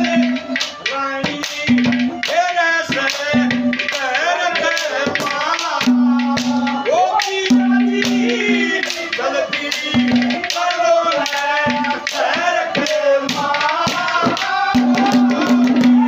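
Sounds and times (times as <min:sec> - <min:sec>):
harmonium melody: 0:00.0 - 0:14.7
hand drum beats: 0:00.0 - 0:16.0
rattling percussion: 0:00.0 - 0:16.0.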